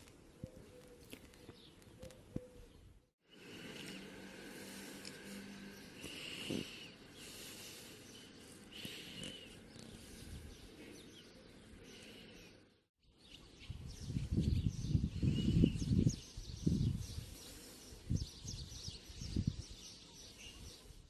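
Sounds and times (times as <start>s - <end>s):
bird chirping: 5.7s - 21.0s
wind rumbling on microphone: 13.5s - 19.9s.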